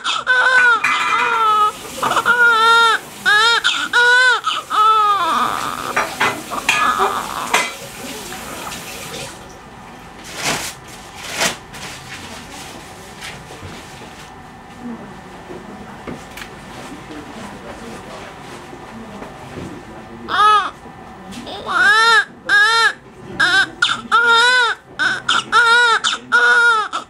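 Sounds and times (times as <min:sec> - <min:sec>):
newborn baby crying: 0:00.0 - 0:07.7, 0:20.3 - 0:20.8, 0:21.5 - 0:27.0.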